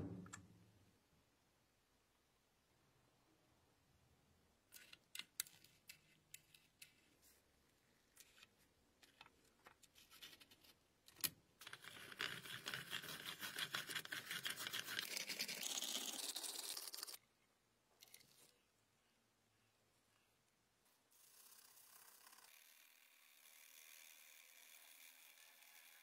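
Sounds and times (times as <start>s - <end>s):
pencil sharpener grinding: 11.6s - 17.2s, 21.2s - 26.0s.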